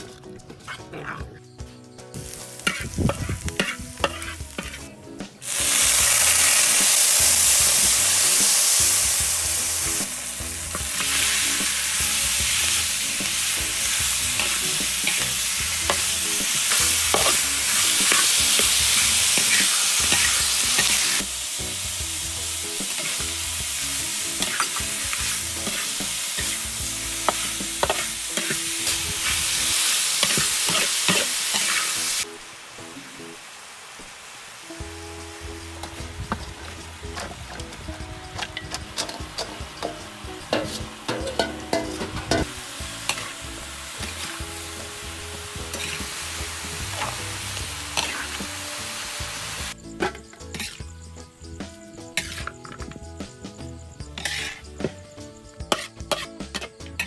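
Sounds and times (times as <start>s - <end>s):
steady sizzling: 2.0s - 57.0s
garlic frying: 2.1s - 57.0s
loud hiss of meat in oil: 5.4s - 37.1s, 42.4s - 49.8s
metal spatula clinking in wok: 38.3s - 42.5s.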